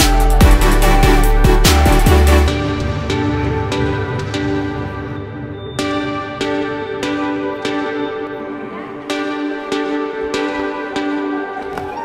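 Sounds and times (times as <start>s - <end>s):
slow calm melody: 0.0s - 12.0s.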